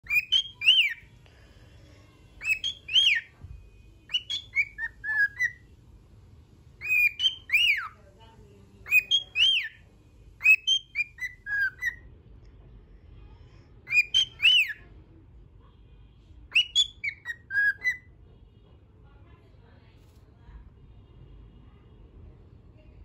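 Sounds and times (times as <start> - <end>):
cockatiel whistling song: 0.0 - 1.1, 2.4 - 5.6, 6.8 - 8.0, 8.8 - 9.8, 10.4 - 12.0, 13.9 - 14.8, 16.5 - 18.1.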